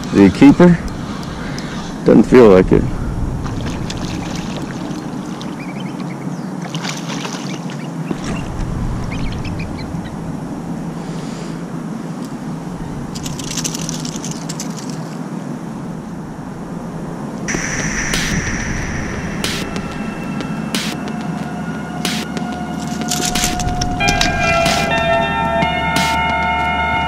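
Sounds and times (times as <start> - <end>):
fish splashing in water: 3.4 - 5.9, 6.6 - 8.4
steady low hum: 15.6 - 26.2.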